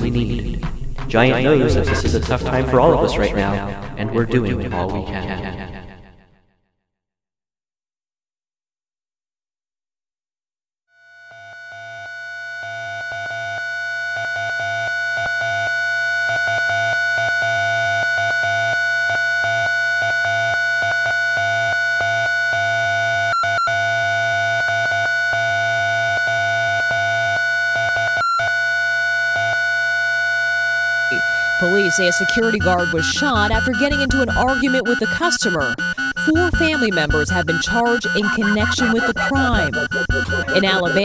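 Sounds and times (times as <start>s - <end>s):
synthesizer music: 0.0s - 5.9s, 31.1s - 41.0s.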